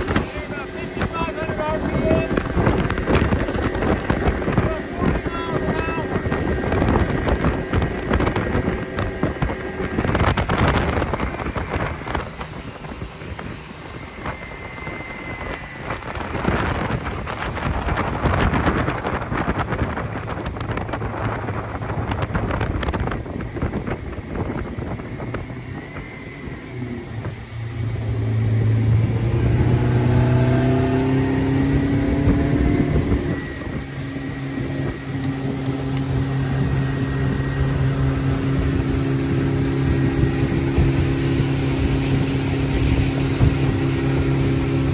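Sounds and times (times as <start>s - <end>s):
outboard motor running: 0.0s - 44.9s
water rushing: 0.0s - 44.9s
wind: 0.0s - 44.9s.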